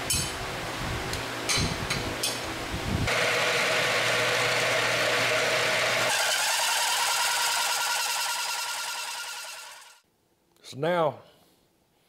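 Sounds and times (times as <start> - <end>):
angle grinder grinding steel: 3.1 - 10.0.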